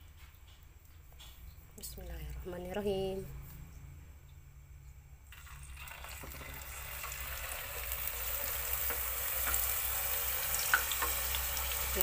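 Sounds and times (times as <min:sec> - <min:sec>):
oil sizzling: 0:05.3 - 0:12.0.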